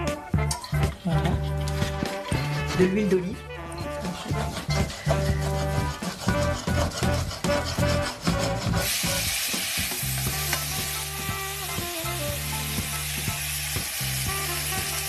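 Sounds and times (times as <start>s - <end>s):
onions sizzling in frying pan: 8.8s - 15.0s.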